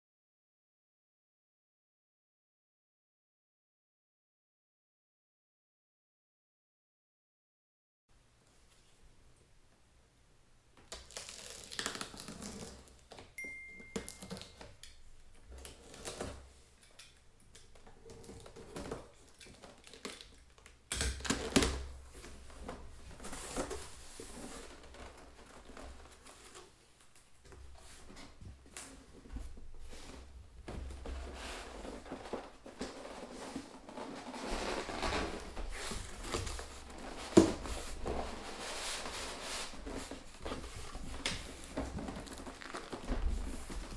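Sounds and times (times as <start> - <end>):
cardboard box tearing and rustling: 41.9 - 43.9.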